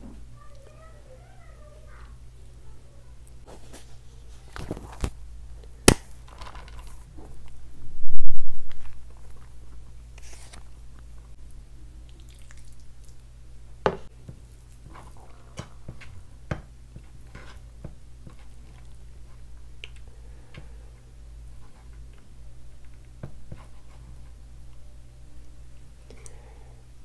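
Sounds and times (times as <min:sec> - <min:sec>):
sticky food squishing: 0:09.2 - 0:13.3.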